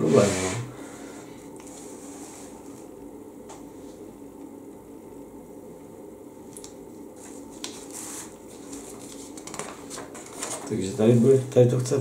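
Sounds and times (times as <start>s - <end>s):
paper pages rustling: 7.2s - 10.9s.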